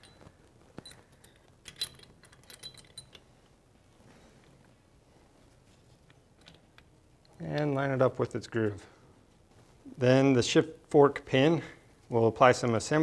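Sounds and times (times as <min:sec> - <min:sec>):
light metallic clinks: 0:00.0 - 0:03.5.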